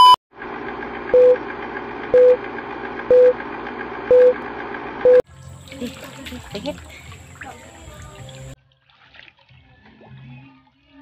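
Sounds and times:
whirring projector clatter: 0.4s - 5.0s
short single-pitched beep: 4.1s - 4.4s.

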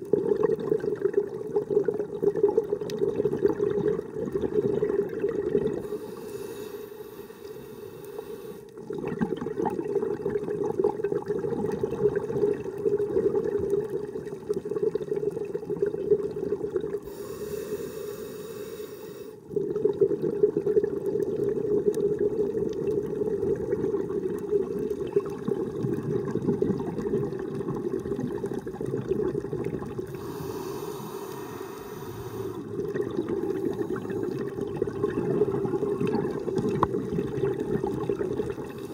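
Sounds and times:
exhaled air bubbling: 0.0s - 38.9s
regulator inhalation hiss: 5.8s - 8.7s, 17.0s - 19.4s, 30.1s - 32.7s.

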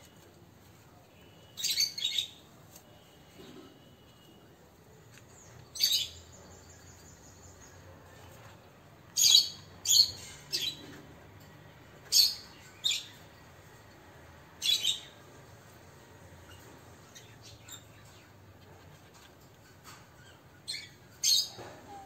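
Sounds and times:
sparrows chirping: 1.2s - 4.3s, 5.0s - 11.2s, 11.9s - 22.0s.

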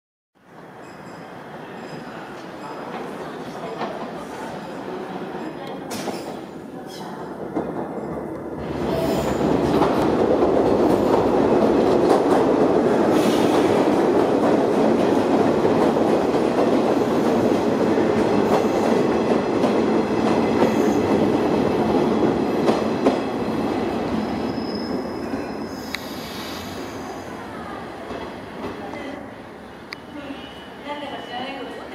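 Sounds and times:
high brake squeal: 0.8s - 2.2s, 24.3s - 27.3s, 30.0s - 31.1s
train wheels rumbling on rails: 1.8s - 27.1s.

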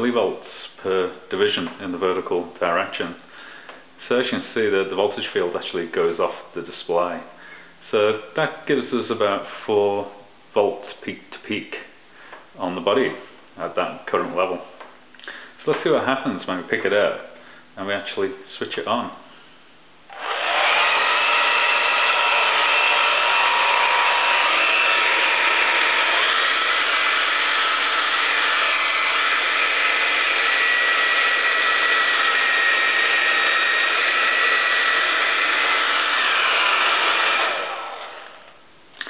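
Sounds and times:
hair dryer running: 20.1s - 38.6s.

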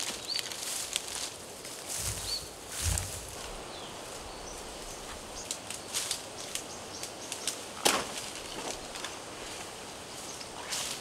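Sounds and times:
leaf snapping: 0.0s - 1.4s, 5.4s - 9.2s
leaf crackling and rustling: 0.0s - 11.0s.

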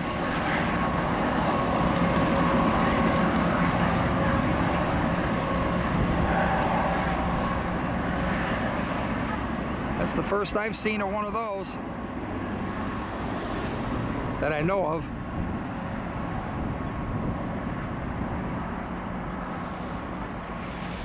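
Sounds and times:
diesel locomotive engine running: 0.0s - 21.0s
train wheels rolling on rail: 1.2s - 8.1s.

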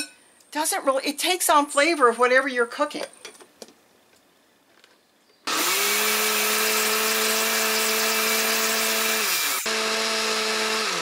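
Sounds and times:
blender running: 5.5s - 11.0s.

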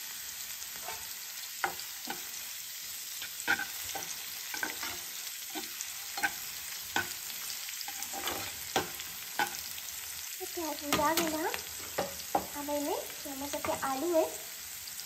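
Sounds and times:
onion sizzling in hot oil: 0.0s - 15.0s
spatula scraping a pan: 0.8s - 10.0s, 10.8s - 12.6s.

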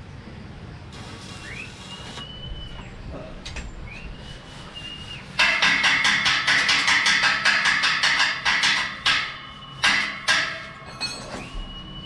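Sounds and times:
long rising whistled notes: 1.2s - 5.4s.

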